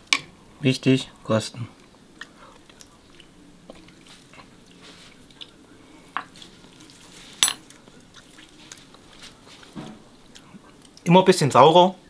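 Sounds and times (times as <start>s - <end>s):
cutlery clinking against a dish: 7.3s - 7.8s.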